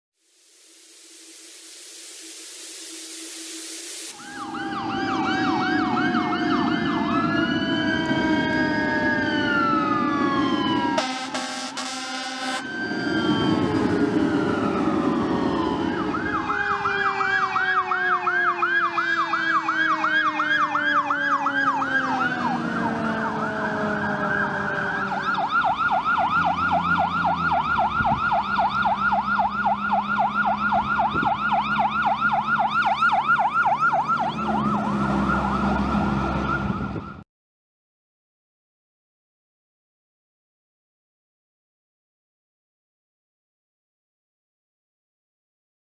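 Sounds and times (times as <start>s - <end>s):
siren winding down: 4.1s - 37.2s
yelp siren: 4.1s - 37.2s.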